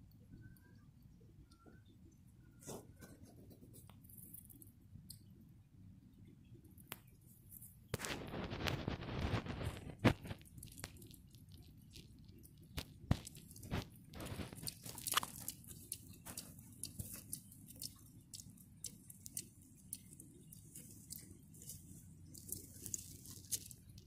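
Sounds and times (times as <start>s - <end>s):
hedgehogs snuffling and chewing: 6.8s - 24.0s
hedgehogs rustling in dry leaves: 20.1s - 24.0s.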